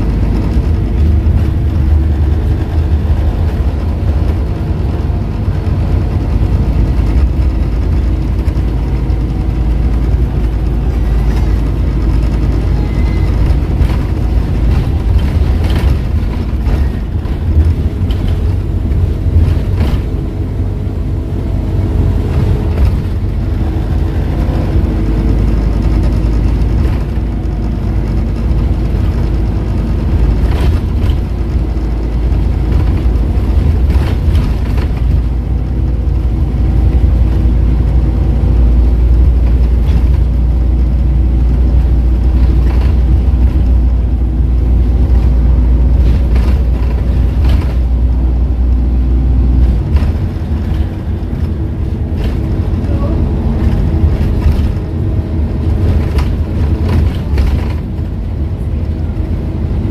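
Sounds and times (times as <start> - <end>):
bus engine drone: 0.0 - 59.9
gearbox humming tone: 0.0 - 59.9.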